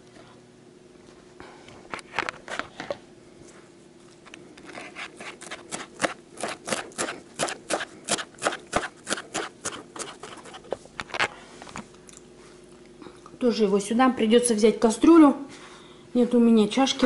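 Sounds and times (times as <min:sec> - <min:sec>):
knife chopping on plastic board: 0:05.2 - 0:10.6.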